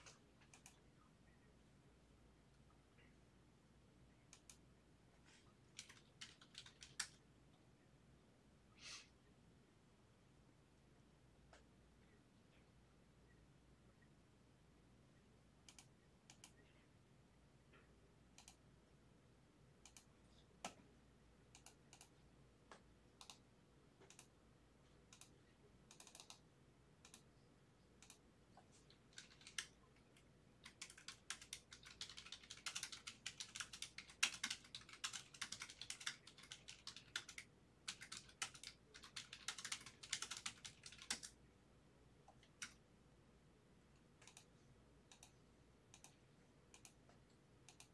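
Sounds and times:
keyboard typing: 0.0 - 0.8, 4.3 - 4.6, 5.4 - 7.2, 21.5 - 22.2, 23.2 - 23.4, 25.1 - 26.4, 28.0 - 41.4, 42.2 - 42.8, 44.0 - 47.9.

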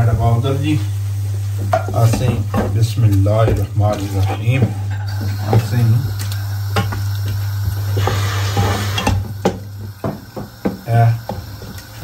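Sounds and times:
vegetables sizzling in a pot: 0.0 - 12.0
wooden spoon stirring and scraping: 1.6 - 5.0.

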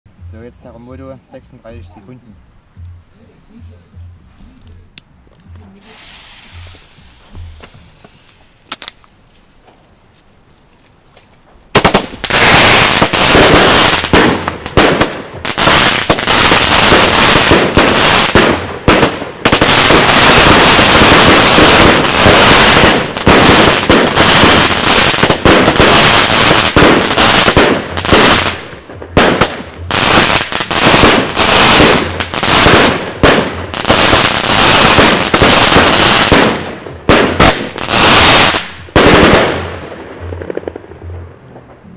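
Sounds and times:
fuse hissing: 5.8 - 8.8
firework shots and bangs: 11.7 - 41.9.

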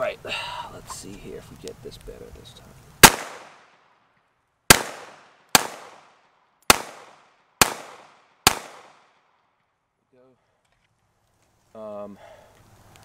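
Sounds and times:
pistol shots: 3.0 - 3.8, 4.7 - 9.3.

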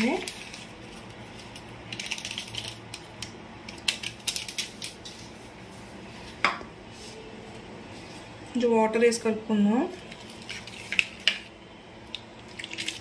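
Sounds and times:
foil sachet crinkling: 0.0 - 5.1.

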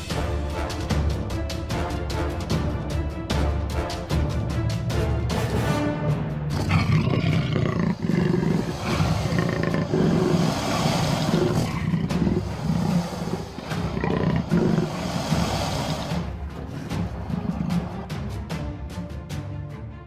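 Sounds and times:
big cat roaring and growling: 6.5 - 18.2.

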